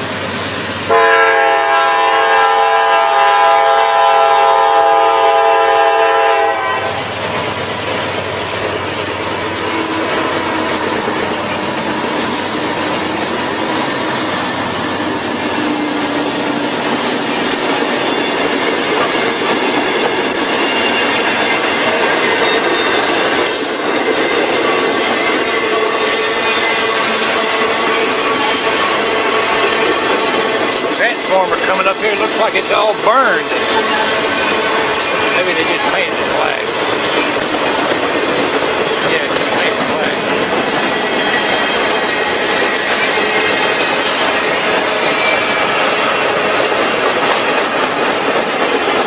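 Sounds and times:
train wheels rumbling on rails: 0.0s - 49.0s
locomotive air horn chord: 0.9s - 7.1s.

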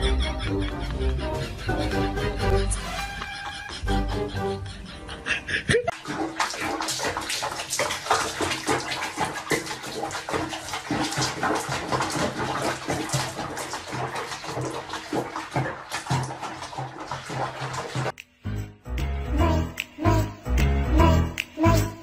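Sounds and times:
water sloshing in a washbasin: 5.8s - 18.2s.

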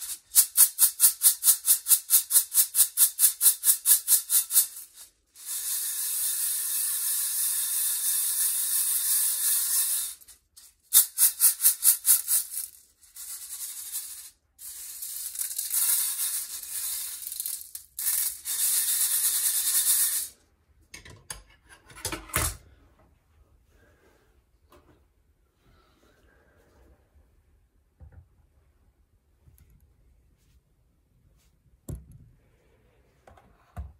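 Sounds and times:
coffee beans rattling in colander: 0.0s - 20.4s.

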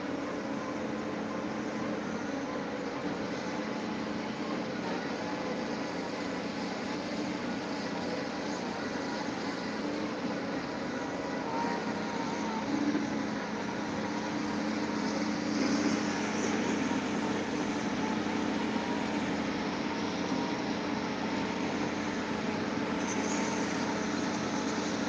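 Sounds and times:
piling rig engine droning: 0.0s - 25.0s.

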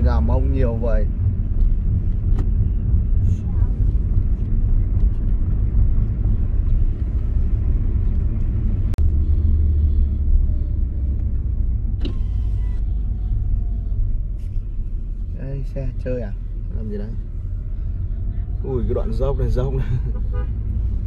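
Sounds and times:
car engine and tyre rumble: 0.0s - 21.0s.

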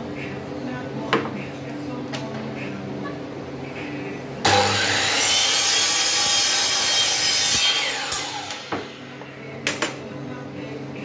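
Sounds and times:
miter saw cutting wood: 4.4s - 9.0s.

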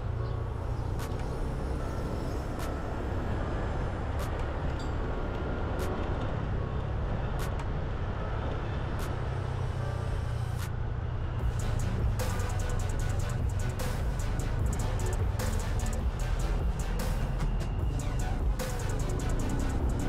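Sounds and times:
engine and road rumble: 0.0s - 20.0s.

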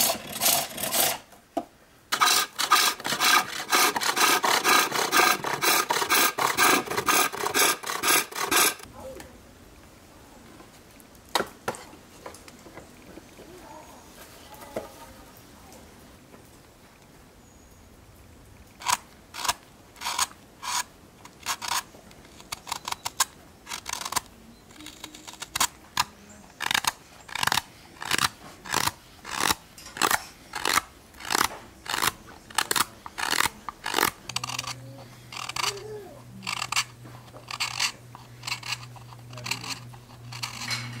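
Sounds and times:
knife cutting wood shavings: 2.2s - 8.9s, 35.4s - 41.0s
low steady hum: 29.8s - 41.0s.

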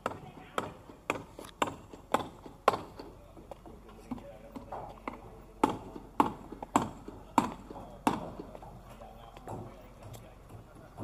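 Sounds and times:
footsteps on stone paving: 3.3s - 6.8s.

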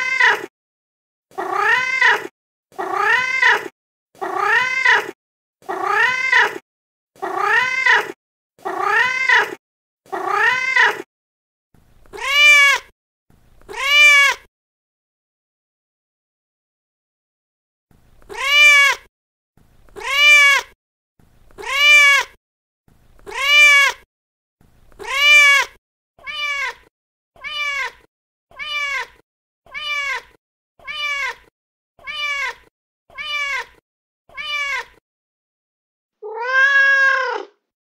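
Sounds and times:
cat meowing: 0.0s - 0.5s, 1.3s - 6.6s, 7.2s - 11.0s, 12.1s - 12.9s, 13.7s - 14.5s, 18.3s - 19.1s, 20.0s - 20.8s, 21.6s - 22.4s, 23.3s - 24.0s, 25.0s - 35.0s, 36.2s - 37.6s.

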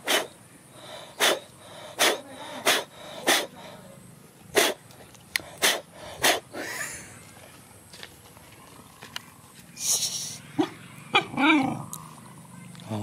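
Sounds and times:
dog snorting through nose: 0.0s - 3.8s, 4.5s - 4.8s, 5.4s - 6.5s.

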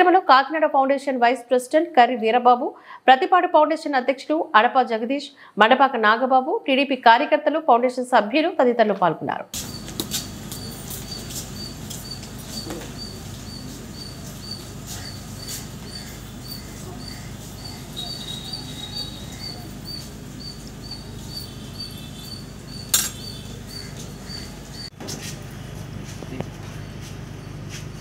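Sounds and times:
light clinks: 22.9s - 23.3s.

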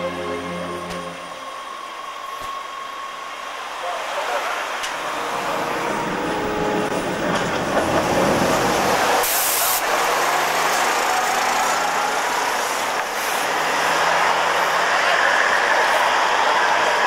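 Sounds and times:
diesel railcar idling: 0.0s - 17.0s
compressed air hiss: 9.2s - 9.9s.

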